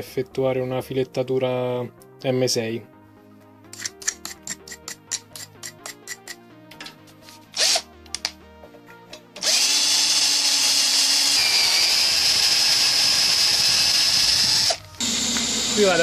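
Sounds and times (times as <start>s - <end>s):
electric drill whining into metal: 7.6s - 8.3s, 9.4s - 16.0s.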